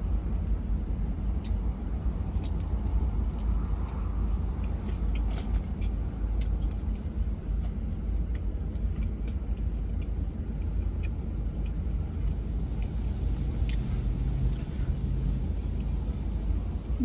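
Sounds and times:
chewing clicks: 2.3s - 7.3s, 8.2s - 13.0s.

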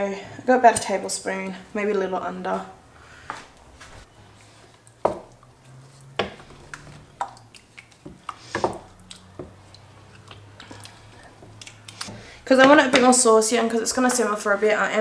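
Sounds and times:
wet squelching of sauce: 4.2s - 12.5s.

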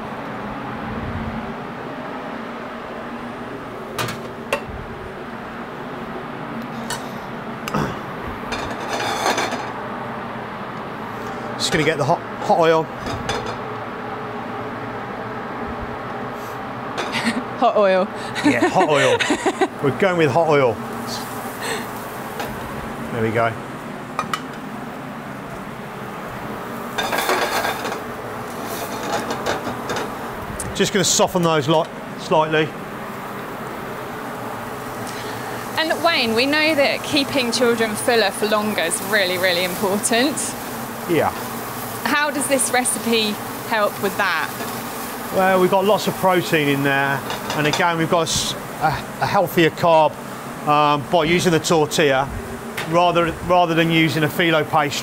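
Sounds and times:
steady background whir: 0.0s - 55.0s
metal pans and utensils clinking: 8.5s - 9.8s, 27.0s - 28.1s, 28.7s - 30.1s, 47.2s - 47.9s
vegetables sizzling in hot oil: 16.9s - 55.0s.

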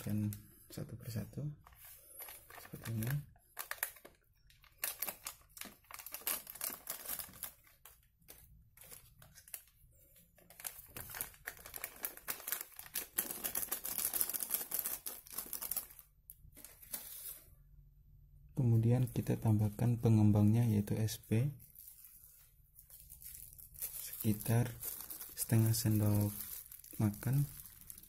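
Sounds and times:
plastic sachets crinkling: 1.7s - 17.4s, 21.6s - 28.0s.

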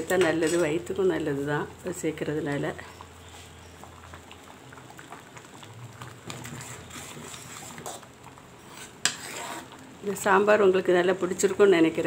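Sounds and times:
ladle stirring: 0.0s - 0.9s, 2.7s - 10.6s
pot bubbling: 0.0s - 12.0s.

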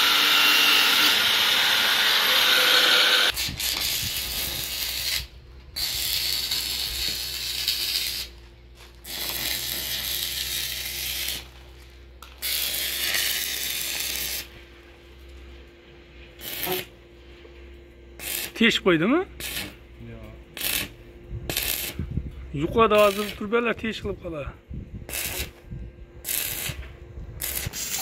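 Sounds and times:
welding arc crackling: 0.0s - 14.6s, 16.4s - 17.0s, 18.2s - 18.8s, 19.4s - 22.1s, 22.8s - 23.7s, 25.0s - 25.6s, 26.2s - 28.0s
low hum: 2.6s - 28.0s.

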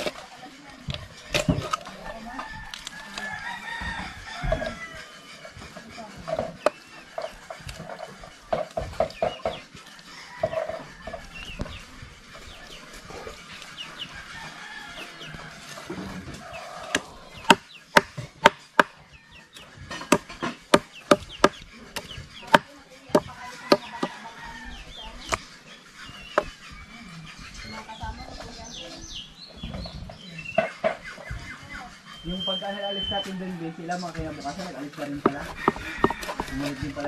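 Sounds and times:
knife chopping on wooden board: 16.9s - 19.0s, 19.9s - 24.2s, 35.0s - 37.0s.

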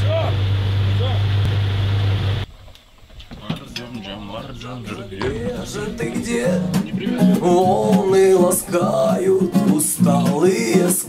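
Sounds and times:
acoustic guitar strumming: 5.2s - 11.0s
person singing: 5.2s - 11.0s.

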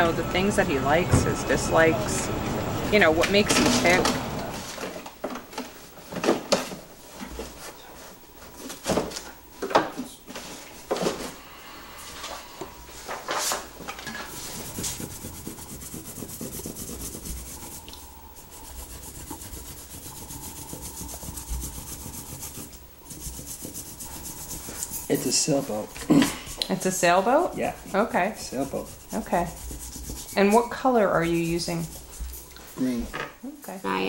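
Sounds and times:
scratching colouring strokes: 14.1s - 33.0s.

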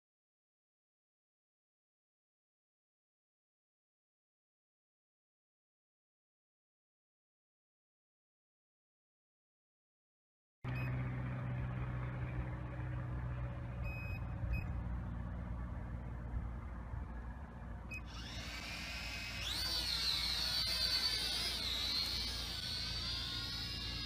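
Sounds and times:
drone propeller whine: 10.7s - 24.0s
low steady hum: 10.7s - 24.0s.

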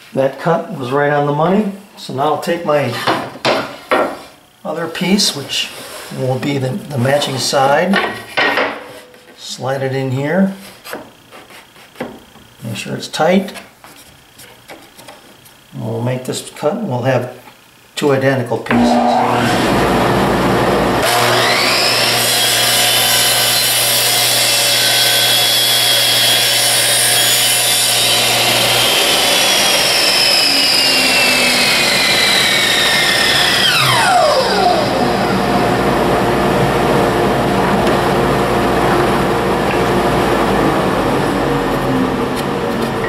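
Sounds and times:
miter saw cutting wood: 18.7s - 43.0s.

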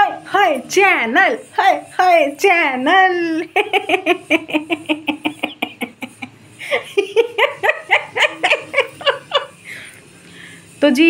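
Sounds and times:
woman laughing: 3.2s - 9.8s.

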